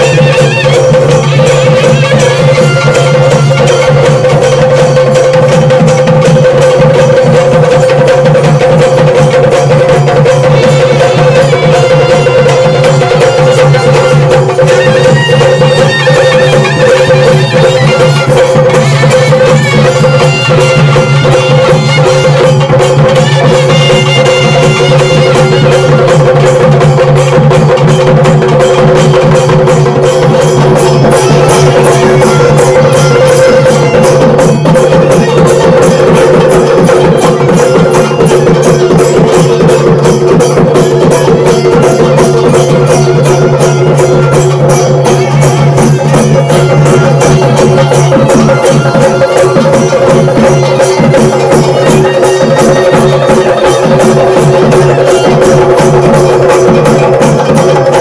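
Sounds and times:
barrel drums beating fast: 0.0 - 58.0.

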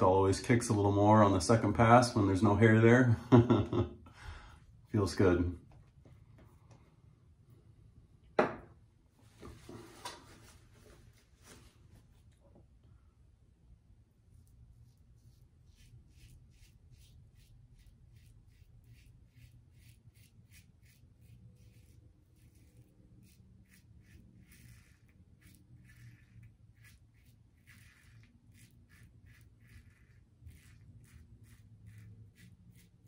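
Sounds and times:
razor scraping stubble: 14.4 - 33.0.

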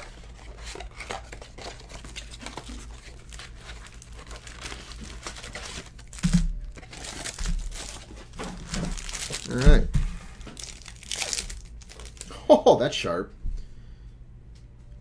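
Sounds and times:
shrink wrap crinkling: 0.0 - 12.4
cardboard box torn open: 0.6 - 9.8, 10.5 - 12.3.

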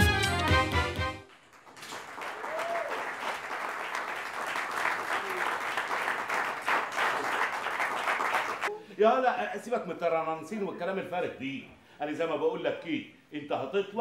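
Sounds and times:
stage music: 0.0 - 3.6
audience applauding: 1.2 - 8.7.

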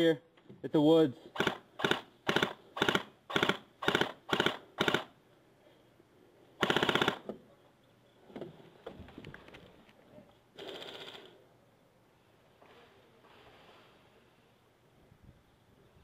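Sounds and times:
airsoft rifle firing bursts: 1.3 - 5.2, 6.6 - 7.2.

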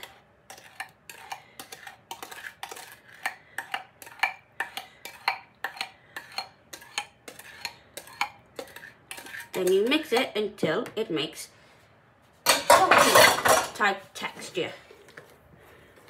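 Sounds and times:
spoon scraping mixing bowl: 0.0 - 10.4.

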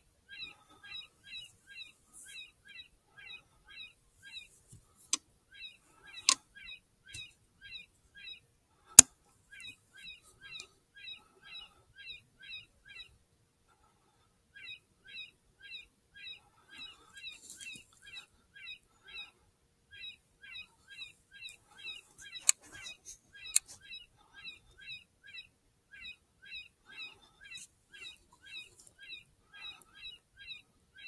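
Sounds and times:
electronic squeaky animal call: 20.0 - 31.0.

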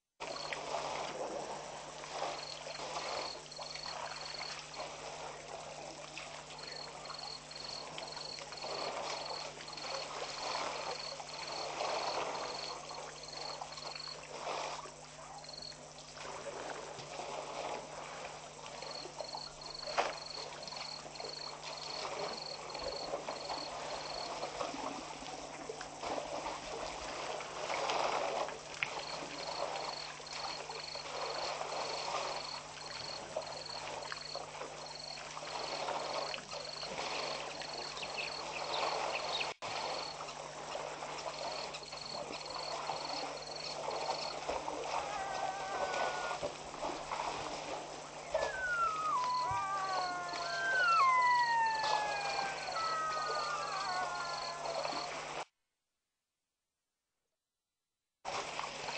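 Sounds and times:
water splashing and trickling: 0.2 - 55.4, 58.3 - 58.9
high even chirping: 48.4 - 54.6.

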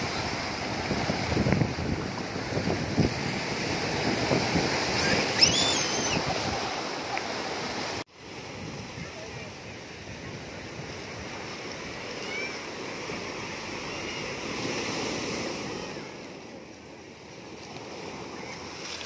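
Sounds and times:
wind buffeting microphone: 0.0 - 6.8
surf breaking over rocks: 0.0 - 19.0.

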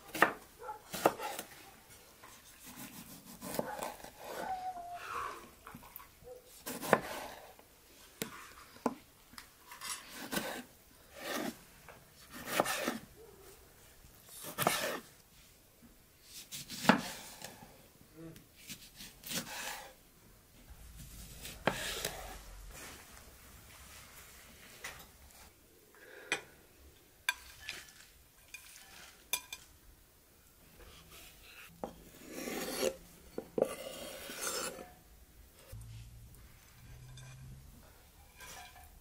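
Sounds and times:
knife slicing on cutting board: 2.6 - 4.4, 12.3 - 13.0.

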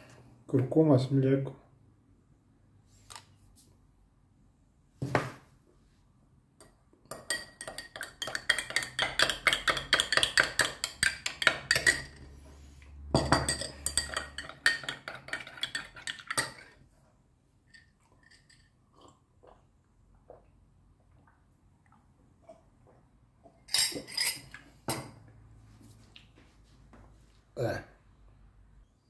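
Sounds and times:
teaspoon clinking against glass: 13.2 - 16.6.

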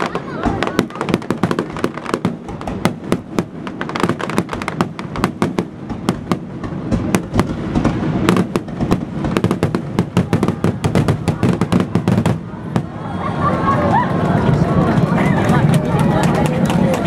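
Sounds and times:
firework booms and crackling: 0.0 - 13.3.

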